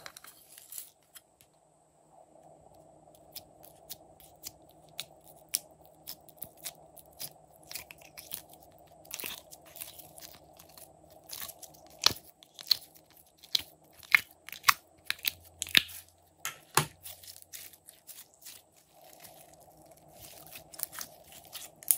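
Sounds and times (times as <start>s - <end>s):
slime wet pops and crackles: 3.3s - 16.0s.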